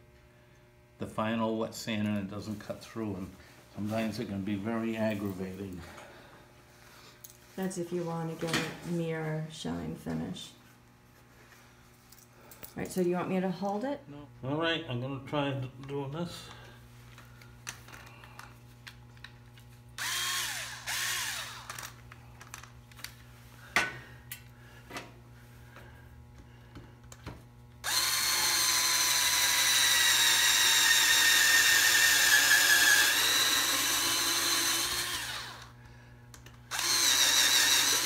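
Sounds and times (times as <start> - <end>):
cordless drill driving screw: 20.0 - 21.9, 27.8 - 35.7, 36.7 - 38.0.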